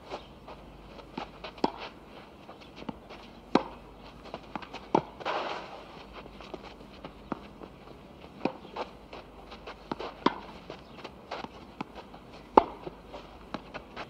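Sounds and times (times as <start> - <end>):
faint background noise: 0.0 - 14.0.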